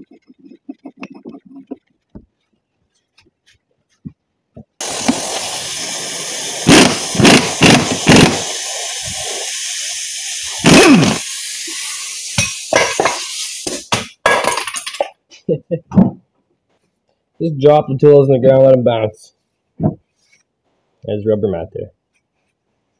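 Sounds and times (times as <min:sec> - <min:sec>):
loud steady hiss: 0:04.8 - 0:14.0.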